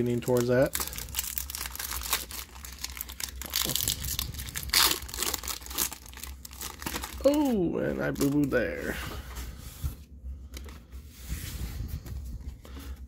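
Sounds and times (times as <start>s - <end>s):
foil ripping: 0.0s - 8.6s
foil wrapper crinkling: 0.0s - 8.8s.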